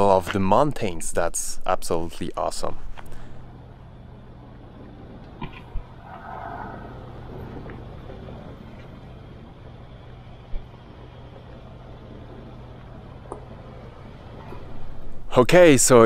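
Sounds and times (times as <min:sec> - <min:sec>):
car engine running: 0:00.0 - 0:16.0
tyres rumbling on dirt: 0:00.0 - 0:16.0.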